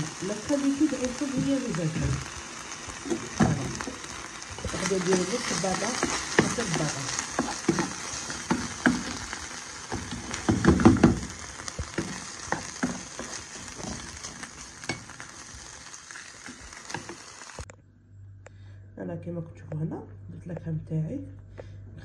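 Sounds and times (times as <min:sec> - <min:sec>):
chicken and cream sizzling in pan: 0:00.0 - 0:17.7
spatula scraping a pan: 0:03.1 - 0:17.3.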